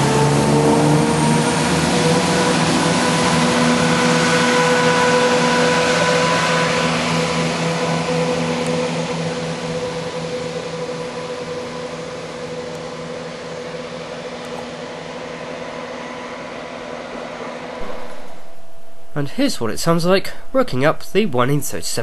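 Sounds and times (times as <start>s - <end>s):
rushing noise: 17.8s - 22.0s.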